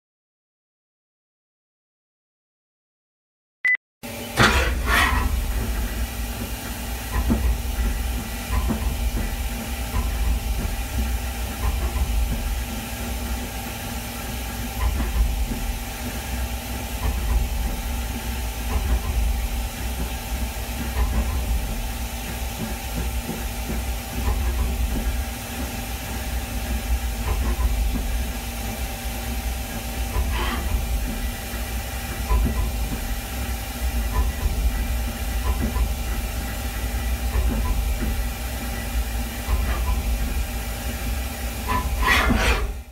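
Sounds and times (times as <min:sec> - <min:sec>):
milling machine hiss and hum: 0:04.1 - 0:42.9.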